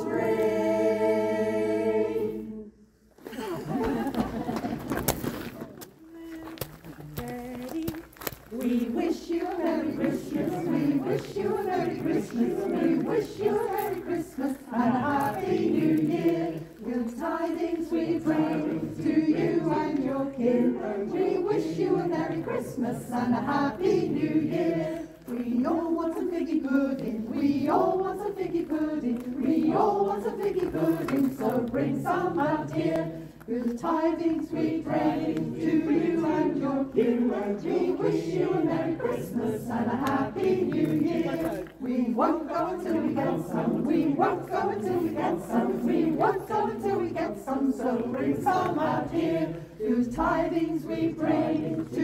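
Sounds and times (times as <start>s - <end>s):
choir singing: 0.0s - 3.0s, 8.5s - 52.0s.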